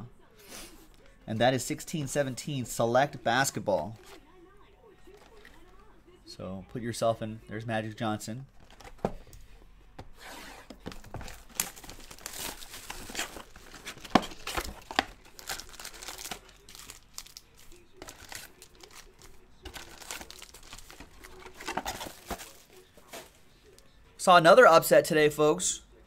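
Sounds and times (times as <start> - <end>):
cardboard box opening: 10.0 - 17.0, 19.7 - 23.4
foil packs rustling: 10.1 - 23.4
shrink wrap crinkling and tearing: 10.8 - 23.4.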